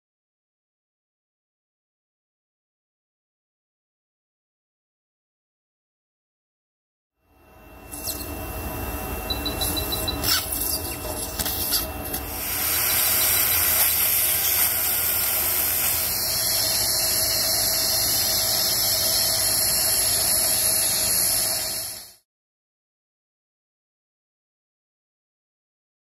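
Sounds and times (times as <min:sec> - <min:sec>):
surgical suction hiss: 0:11.4 - 0:22.2.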